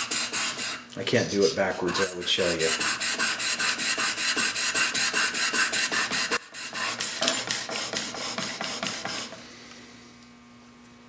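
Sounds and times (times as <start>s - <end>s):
chisel scraping on sharpening stone: 1.9s - 7.6s.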